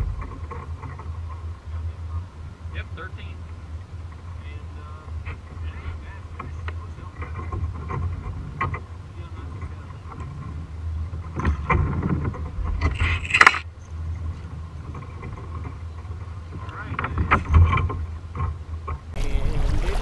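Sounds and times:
water lapping against kayak hull: 0:00.0 - 0:20.0
wind rumble on microphone: 0:00.0 - 0:20.0
small knocks: 0:05.2 - 0:13.6.

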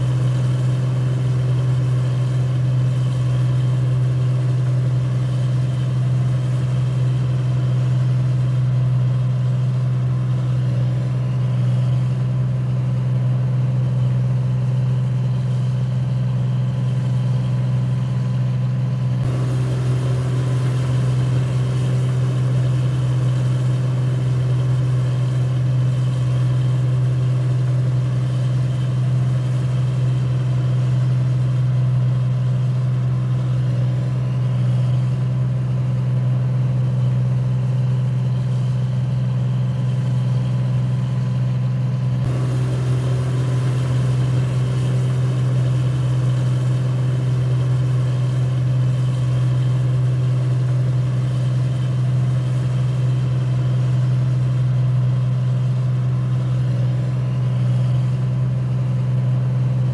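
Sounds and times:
machine motor humming: 0:00.0 - 0:36.0, 0:42.2 - 0:53.8.

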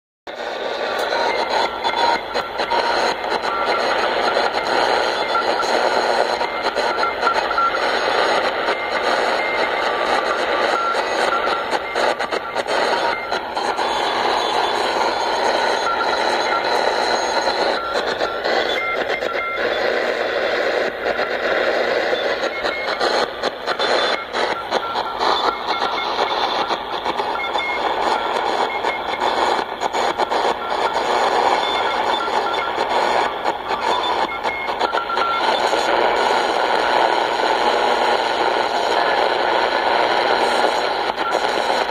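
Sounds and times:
radio static and hiss: 0:00.3 - 0:41.9
short beeping tones: 0:01.1 - 0:19.9, 0:22.0 - 0:35.9.

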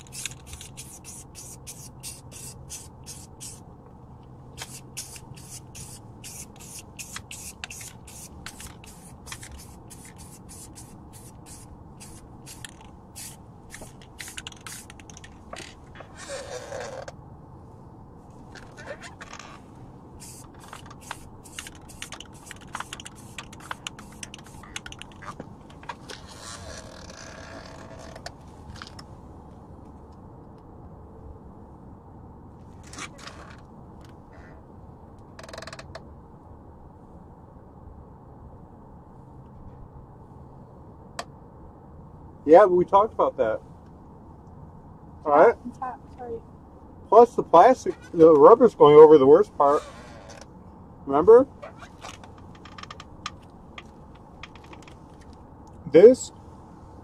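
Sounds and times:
spray can ball rattling: 0:00.0 - 0:03.6, 0:04.6 - 0:15.7, 0:20.2 - 0:25.4
spray can hissing: 0:00.0 - 0:03.6, 0:04.6 - 0:15.3, 0:20.2 - 0:25.1.

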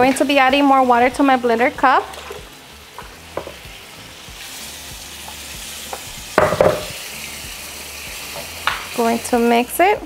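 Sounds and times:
salsa sizzling in a pan: 0:00.0 - 0:10.0
pan clatter: 0:06.4 - 0:07.0.

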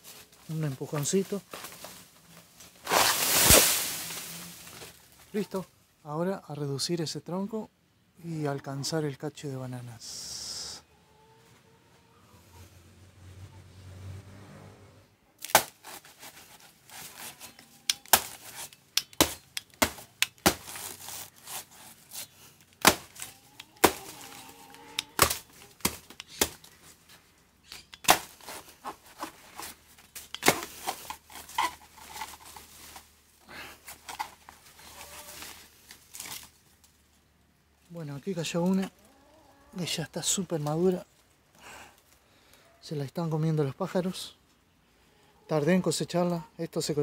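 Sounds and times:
machete chopping plant trunk: 0:15.4 - 0:16.1, 0:17.9 - 0:21.6, 0:22.8 - 0:24.3, 0:25.0 - 0:26.7, 0:27.7 - 0:28.6, 0:30.2 - 0:31.1.

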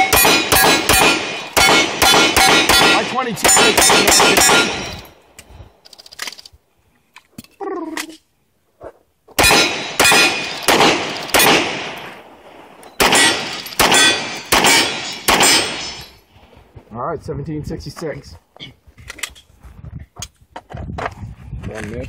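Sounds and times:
handgun shots with ringing echo: 0:00.0 - 0:05.0, 0:09.4 - 0:12.1, 0:13.0 - 0:16.0.

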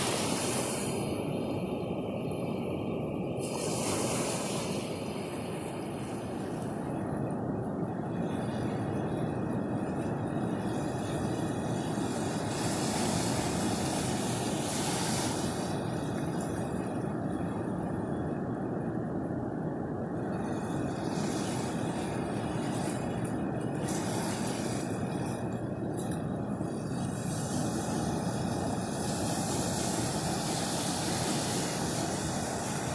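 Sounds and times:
foaming surf hiss: 0:00.0 - 0:02.2, 0:03.2 - 0:06.4, 0:10.5 - 0:17.4, 0:20.3 - 0:32.9
waves breaking: 0:00.0 - 0:32.9.

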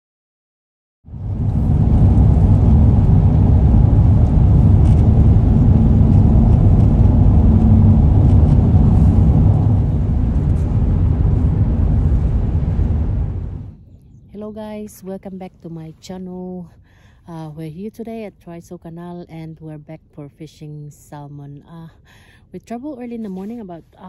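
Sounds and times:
car interior road rumble: 0:01.2 - 0:13.8.

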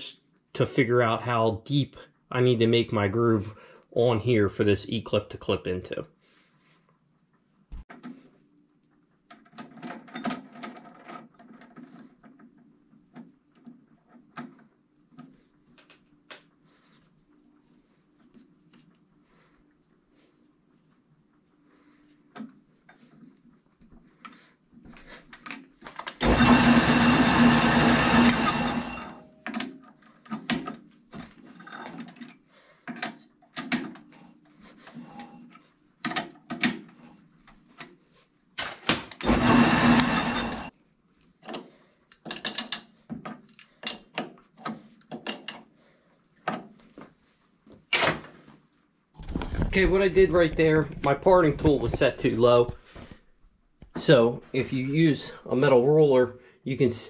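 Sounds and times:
metal lathe humming: 0:26.2 - 0:29.2, 0:39.2 - 0:40.7
clicks and metal taps: 0:31.9 - 0:34.1, 0:36.0 - 0:36.9, 0:41.4 - 0:45.6.

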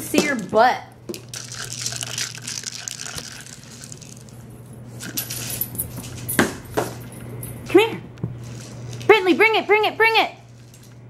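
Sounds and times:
kibble rattling in plastic ball: 0:00.4 - 0:04.4.

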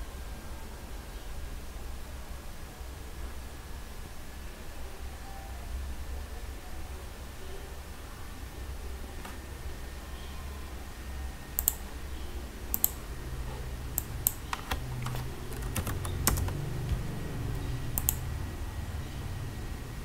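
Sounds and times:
low steady hum: 0:00.0 - 0:20.0
keyboard key clicks: 0:12.7 - 0:13.0, 0:14.0 - 0:17.0, 0:17.9 - 0:18.2.

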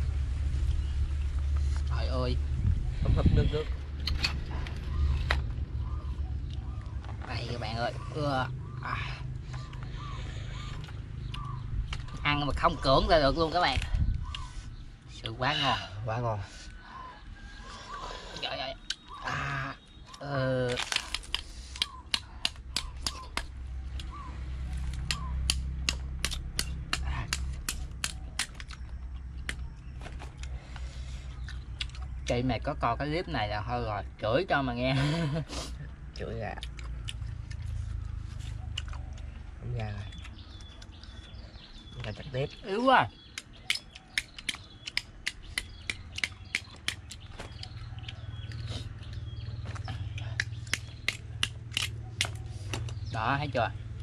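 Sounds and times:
low steady hum: 0:00.0 - 0:54.0
low steady rumble: 0:00.0 - 0:54.0
knife chopping shells: 0:21.1 - 0:23.5, 0:25.0 - 0:28.7, 0:43.3 - 0:47.6, 0:50.4 - 0:52.9
sharp clicks: 0:43.2 - 0:49.2.

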